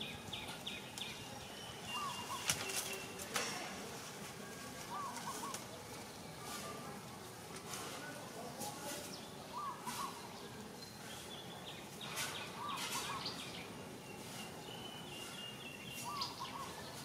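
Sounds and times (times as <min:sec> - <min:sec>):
steady background noise: 0:00.0 - 0:17.0
faint rustles: 0:02.2 - 0:09.2.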